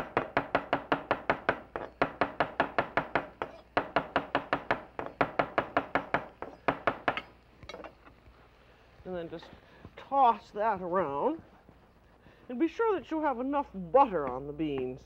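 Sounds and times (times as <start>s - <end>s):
knife chopping on wooden board: 0.0s - 7.3s.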